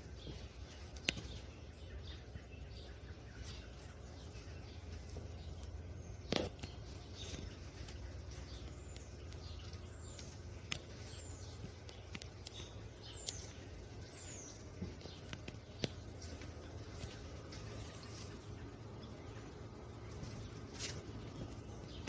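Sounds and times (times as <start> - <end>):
low steady rumble: 0.0 - 22.0
small birds chirping: 0.0 - 22.0.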